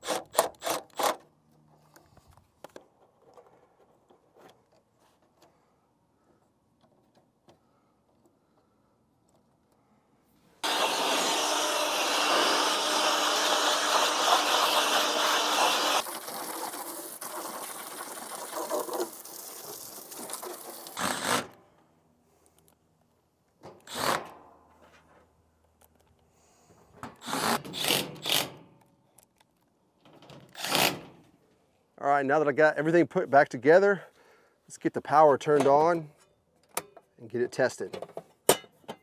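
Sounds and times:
cordless driver driving screws: 0.0s - 1.2s, 23.8s - 24.3s, 27.1s - 28.6s, 30.5s - 31.0s
hose spray on coil: 13.4s - 21.0s.

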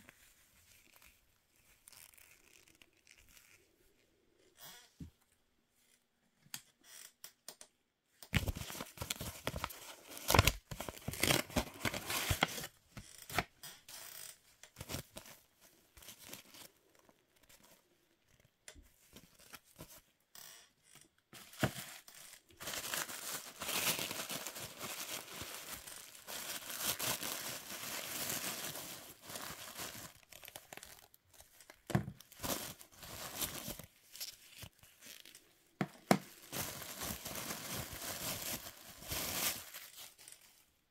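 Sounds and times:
paper and plastic crinkling: 8.4s - 12.7s, 21.4s - 35.5s, 36.1s - 40.8s.

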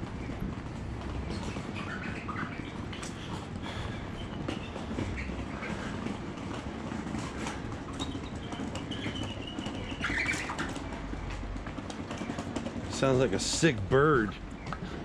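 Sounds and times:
outdoor background hum: 0.0s - 15.0s
bird calling: 1.1s - 6.4s, 7.1s - 11.3s.

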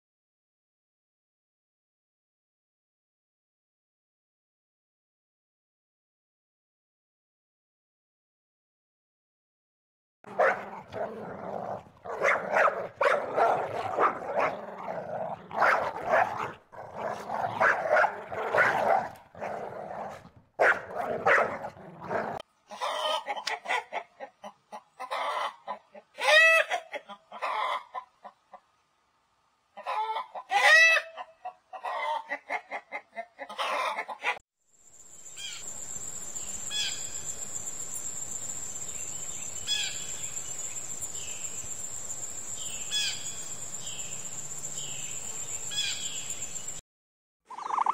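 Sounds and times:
dog barking: 10.3s - 11.2s, 12.1s - 22.4s
chickens clucking: 22.7s - 28.7s, 29.8s - 34.4s, 47.5s - 47.9s
insect trill: 34.7s - 46.8s
bird chirps: 34.9s - 46.8s, 47.5s - 47.9s.

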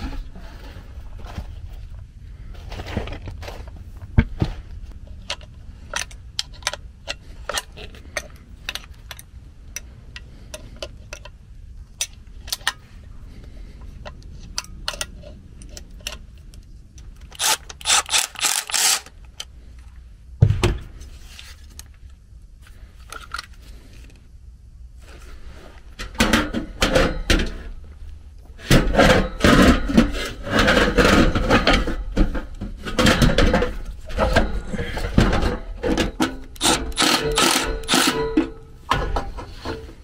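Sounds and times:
metal parts clicking and clinking: 14.0s - 19.5s
thump: 20.4s - 21.0s.

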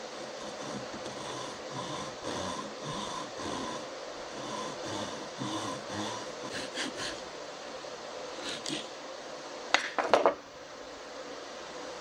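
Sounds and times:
hacksaw rasping through wood: 0.0s - 3.8s, 4.4s - 7.2s.

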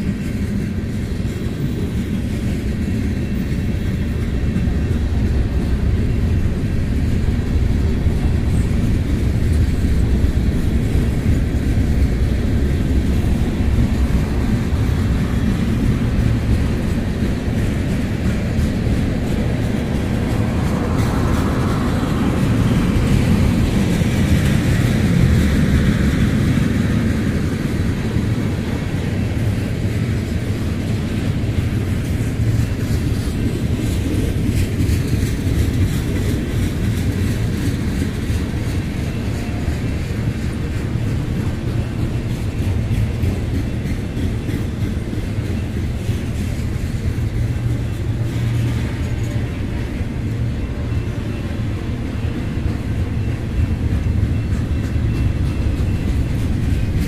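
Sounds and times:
train rolling low rumble: 0.0s - 57.0s.

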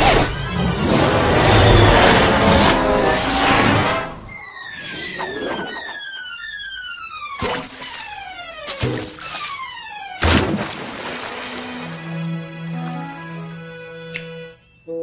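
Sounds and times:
cartoon falling whistles: 4.3s - 6.4s.

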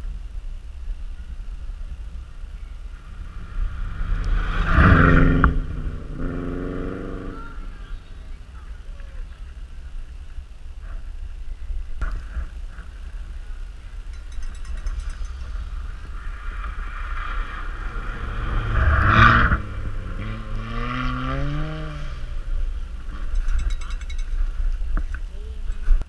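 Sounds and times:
steady low rumble: 0.0s - 26.0s
rally car revving past: 3.1s - 7.7s, 16.0s - 23.3s.

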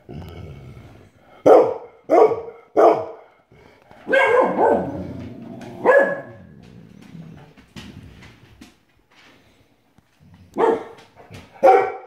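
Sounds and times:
dog barking: 1.4s - 3.2s, 4.1s - 4.9s, 5.8s - 6.4s, 10.6s - 11.0s, 11.6s - 12.0s.

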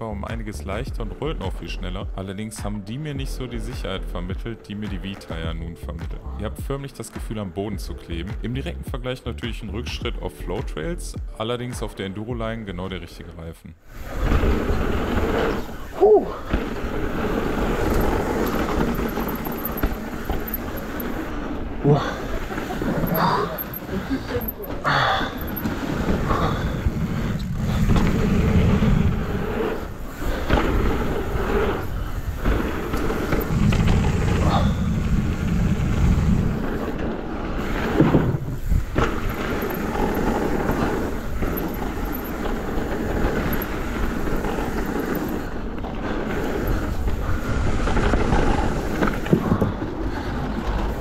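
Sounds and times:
wind and tyre noise: 12.3s - 51.0s
bike knocks and rattles: 16.4s - 51.0s.

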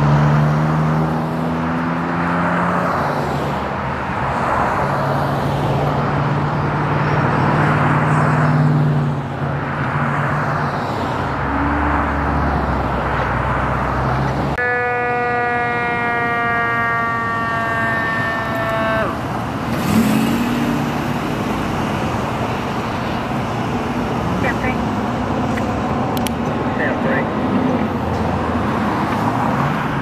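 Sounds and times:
freeway traffic hum: 0.0s - 30.0s
fire engine air horn blast: 14.6s - 19.2s.

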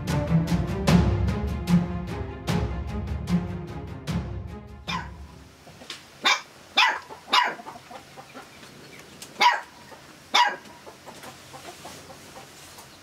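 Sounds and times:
dog barking: 4.9s - 5.2s, 6.2s - 7.8s, 9.4s - 10.8s.

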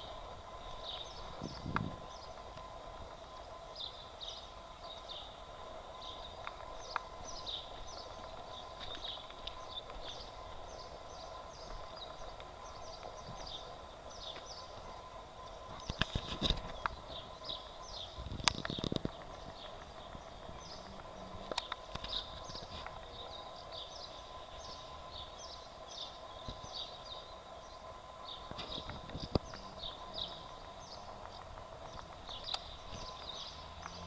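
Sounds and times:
small birds chirping: 0.0s - 34.0s
steady low hum: 0.0s - 34.0s
sharp clicks: 31.2s - 34.0s.

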